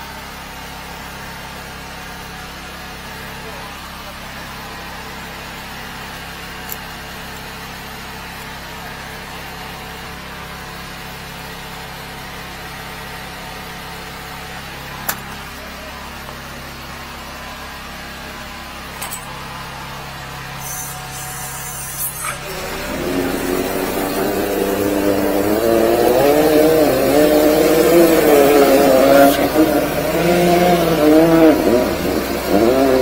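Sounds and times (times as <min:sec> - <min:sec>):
sewer jetter engine running: 0:00.0 - 0:33.0
hiss of spray: 0:20.6 - 0:22.4.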